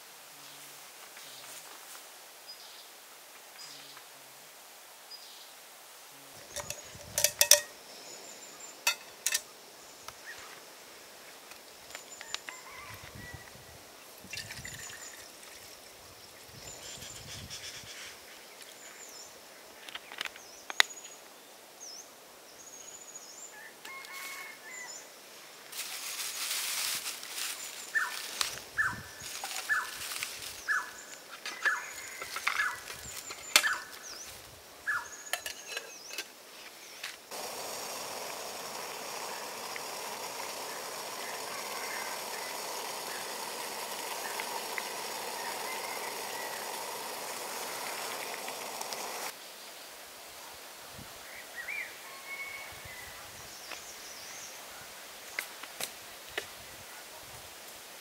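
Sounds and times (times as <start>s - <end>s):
camp stove hissing: 6.4s - 7.8s, 8.8s - 9.5s, 37.3s - 49.4s
plastic bag rustling: 25.8s - 28.5s
birds chirping: 27.6s - 36.2s, 36.8s - 49.3s.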